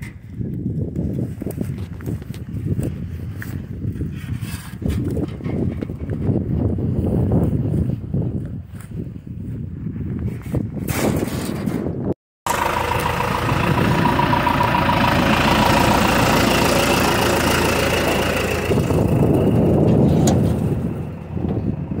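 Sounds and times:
tractor diesel engine idling: 0:12.5 - 0:22.0.

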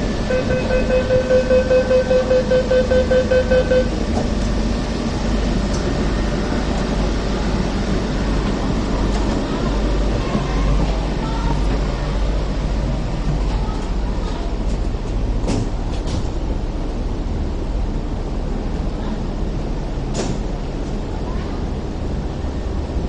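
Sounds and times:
steady low hum: 0:00.0 - 0:23.0
warning buzzer pulsing: 0:00.3 - 0:03.9.

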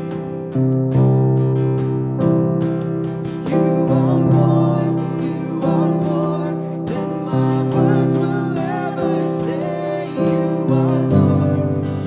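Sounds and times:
drum hits: 0:00.0 - 0:12.0
worship band playing: 0:00.0 - 0:12.0
voices singing: 0:03.5 - 0:12.0.

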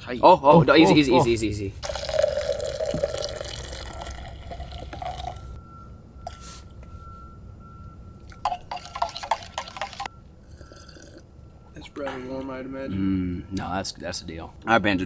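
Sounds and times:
coffee pouring into a cup: 0:01.8 - 0:05.5, 0:08.5 - 0:11.2.

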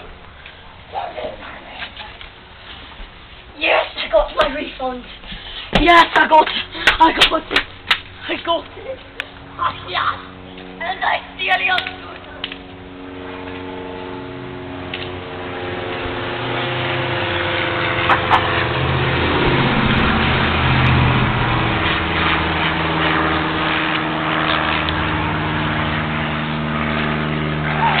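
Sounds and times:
engine running: 0:07.6 - 0:28.0.

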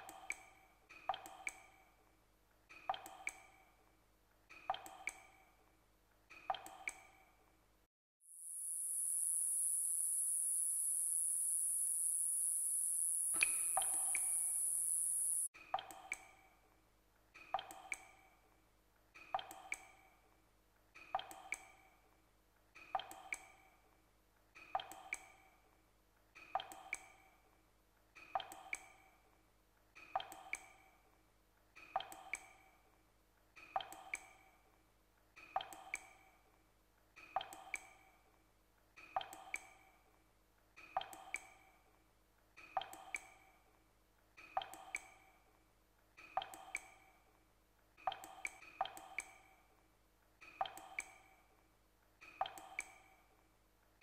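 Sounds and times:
water dripping: 0:06.3 - 0:07.1, 0:08.9 - 0:16.3.

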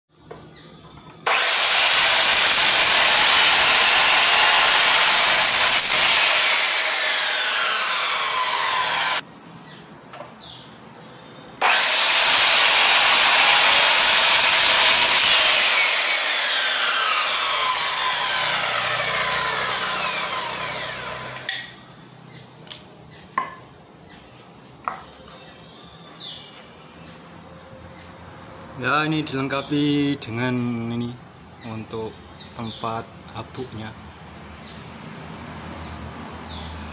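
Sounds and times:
miter saw cutting wood: 0:01.2 - 0:09.2, 0:11.6 - 0:21.7
saw blade spinning down: 0:01.3 - 0:09.2, 0:11.6 - 0:21.5.

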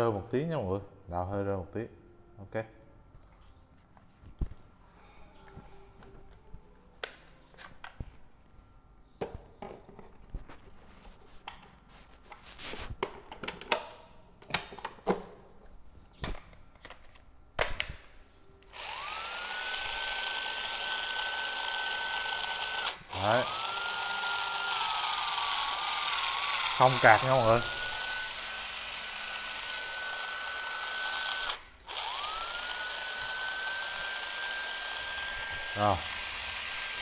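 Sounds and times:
impact driver motor whine: 0:18.7 - 0:37.0.

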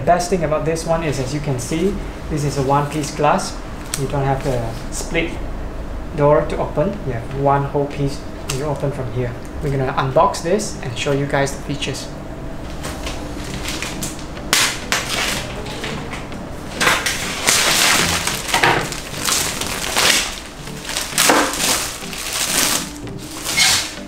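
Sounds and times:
plastic wrap crinkling: 0:13.0 - 0:24.0.

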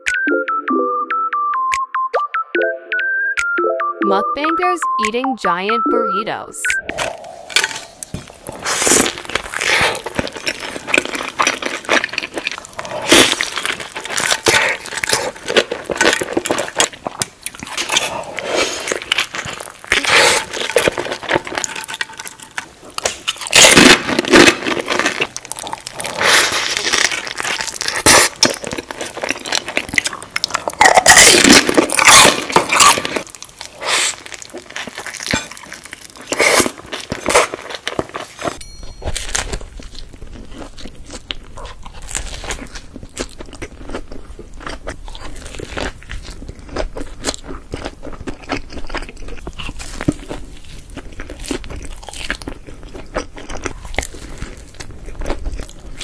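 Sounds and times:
crunchy chewing and biting: 0:06.9 - 0:56.0.

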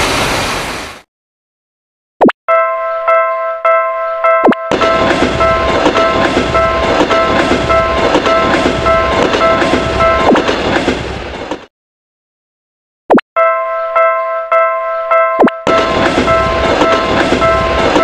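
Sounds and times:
railroad crossing bell ringing: 0:02.5 - 0:10.4, 0:13.4 - 0:18.0
train rumbling past: 0:04.7 - 0:11.7, 0:15.7 - 0:18.0
wheels clacking over rail joints: 0:04.7 - 0:11.7, 0:15.7 - 0:18.0.

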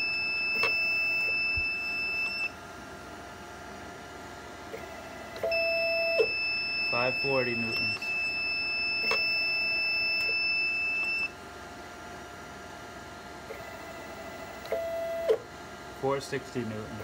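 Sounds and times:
stepper motor whine: 0:00.0 - 0:02.6, 0:04.7 - 0:11.4, 0:13.5 - 0:15.4.

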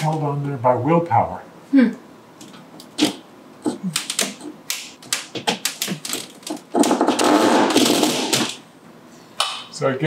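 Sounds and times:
sharp clicks and knocks: 0:02.4 - 0:08.6.

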